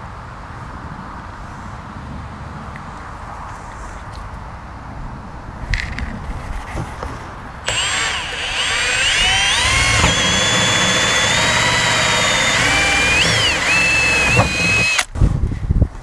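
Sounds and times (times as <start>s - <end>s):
drill cutting through plastic: 7.7s - 15.1s.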